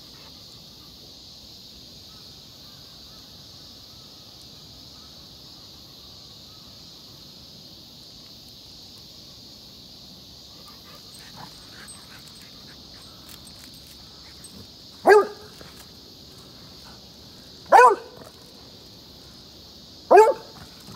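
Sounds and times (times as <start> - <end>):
high-pitched background hiss: 0.0 - 20.9
dog barking: 15.0 - 15.6, 17.7 - 18.3, 20.1 - 20.6.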